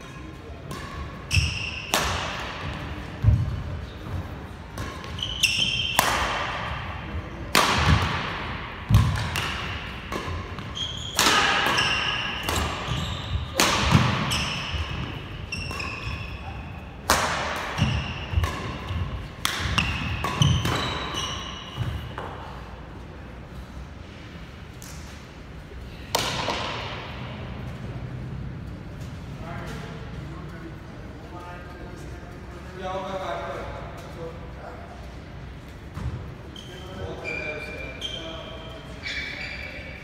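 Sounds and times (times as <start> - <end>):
shoes squeaking on court: 0.0 - 2.0, 2.6 - 6.4, 8.9 - 16.9, 17.8 - 22.6, 35.8 - 40.0
rackets hitting shuttlecock: 0.5 - 3.6, 4.6 - 22.6, 26.0 - 27.8.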